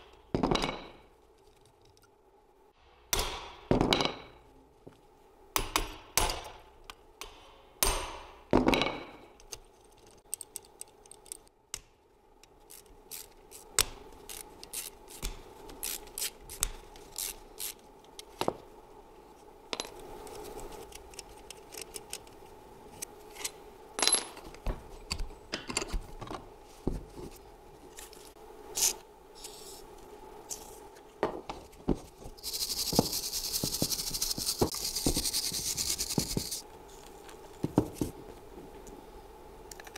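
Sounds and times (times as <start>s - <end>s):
wire brush scrubbing metal: 32.4s - 36.6s.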